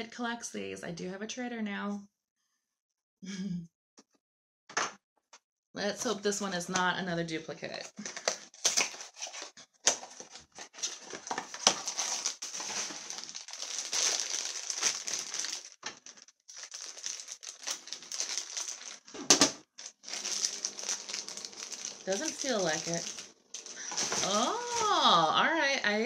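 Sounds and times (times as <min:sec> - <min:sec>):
plastic wrapper crinkling: 0:08.0 - 0:25.2.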